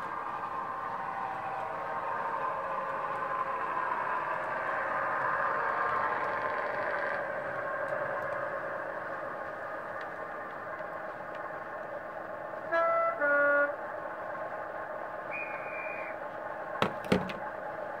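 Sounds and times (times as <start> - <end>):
diesel engine idling through speaker: 0.0 - 18.0
horn blasts: 12.6 - 13.8.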